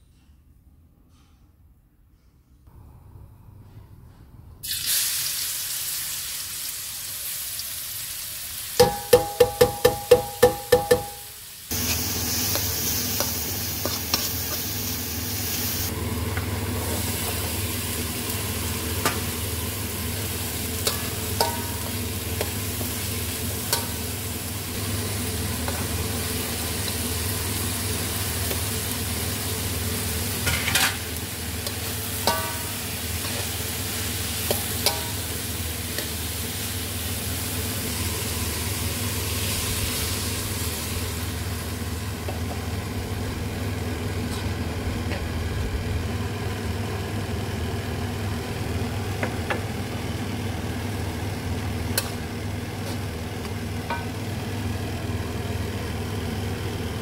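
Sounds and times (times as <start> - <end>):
oil sizzling in a wok: 4.6 - 57.0
spatula knocking on wok: 8.8 - 11.3, 20.8 - 23.0, 31.6 - 33.4, 34.4 - 35.3
spatula clinking and scraping: 8.8 - 14.8, 20.8 - 22.6, 30.4 - 33.7, 34.4 - 36.2.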